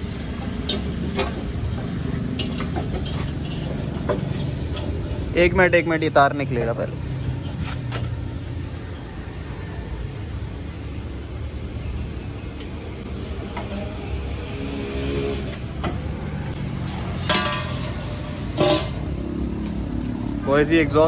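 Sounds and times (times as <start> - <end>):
metal scrapes and clanks: 2.1 - 5.1, 16.8 - 19.1.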